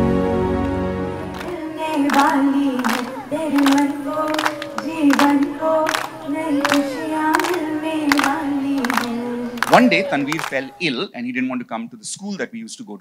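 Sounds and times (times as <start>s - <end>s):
group clapping in time: 0.6s - 11.1s
woman singing: 1.2s - 10.5s.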